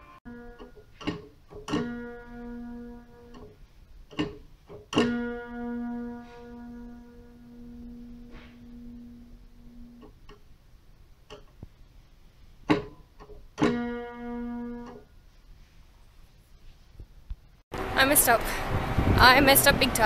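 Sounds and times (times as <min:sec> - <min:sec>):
plucked string ringing: 0:00.0 - 0:03.5, 0:04.1 - 0:10.2, 0:12.7 - 0:15.1.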